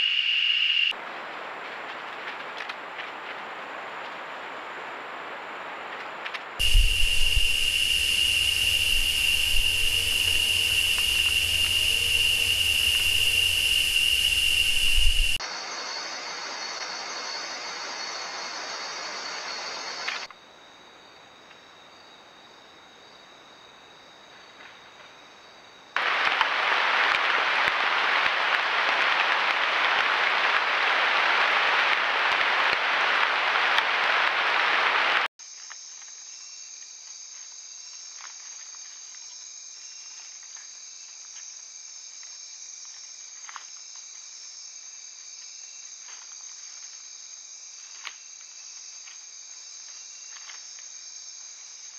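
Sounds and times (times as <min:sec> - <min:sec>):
insects chirring: 0:00.0 - 0:51.9
loud even hiss: 0:06.6 - 0:20.3, 0:26.0 - 0:35.3.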